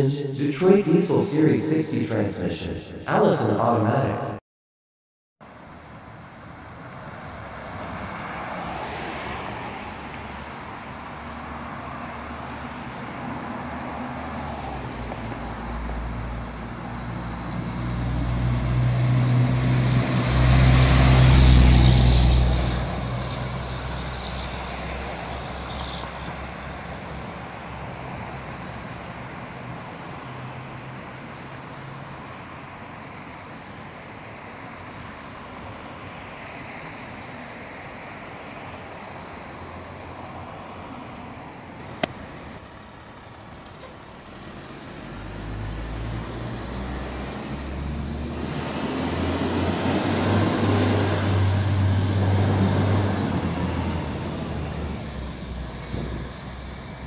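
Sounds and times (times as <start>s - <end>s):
city traffic: 0.0s - 4.4s, 5.4s - 57.0s
diesel truck driving past: 7.1s - 30.7s, 39.0s - 57.0s
high engine whine: 14.9s - 29.4s, 38.6s - 57.0s.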